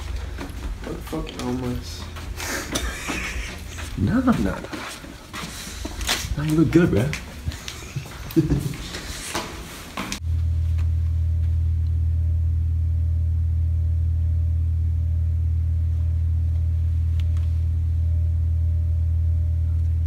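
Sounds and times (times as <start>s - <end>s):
loud low drone: 10.2s - 20.0s.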